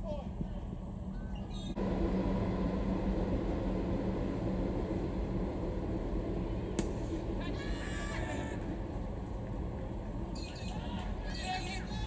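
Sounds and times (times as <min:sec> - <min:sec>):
low background rumble: 0:00.2 - 0:12.0.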